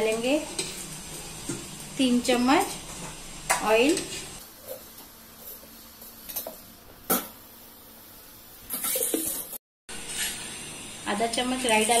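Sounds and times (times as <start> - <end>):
oil hissing in pan: 7.1 - 12.0.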